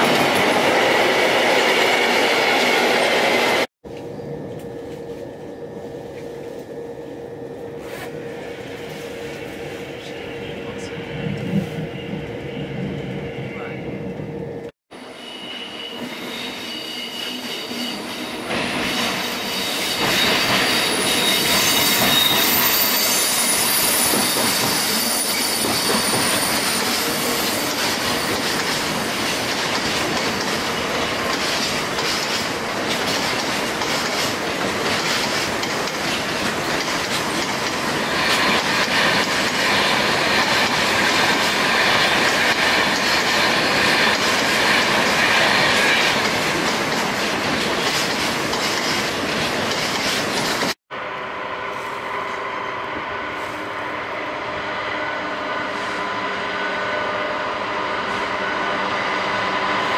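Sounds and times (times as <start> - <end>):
freight train rolling past: 0.0 - 59.9
train wheels squealing: 15.0 - 30.0
wheels clattering over rail joints: 27.7 - 50.8.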